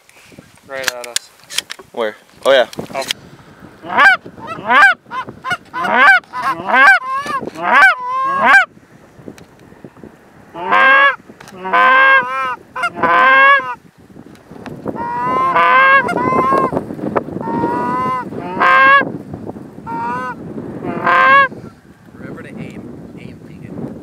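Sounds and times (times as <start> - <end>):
goose honks and clucks: 3.8 - 8.7, 10.6 - 13.8, 15.0 - 16.7, 17.4 - 19.0, 19.9 - 21.5.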